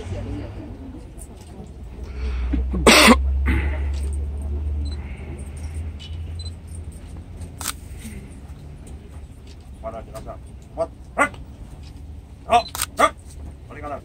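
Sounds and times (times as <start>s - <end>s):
steady low rumble: 0.0s - 14.0s
person coughing: 2.7s - 3.8s.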